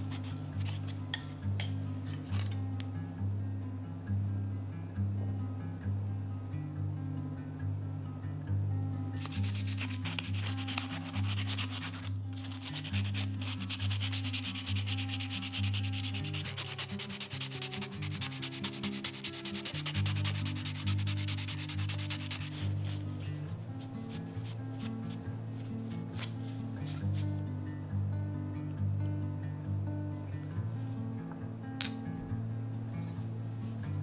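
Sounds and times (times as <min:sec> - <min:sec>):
sandpaper scratching on wood: 0:09.2 - 0:26.3.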